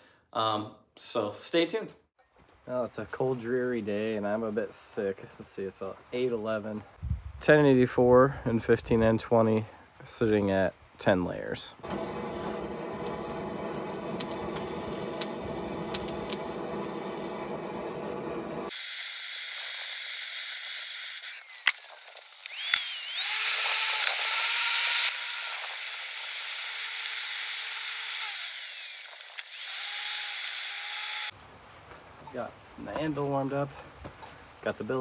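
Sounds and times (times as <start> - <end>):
hand-crank blower whine: 11.8 - 18.8, 22.4 - 31.3
propane torch hissing: 11.8 - 18.8.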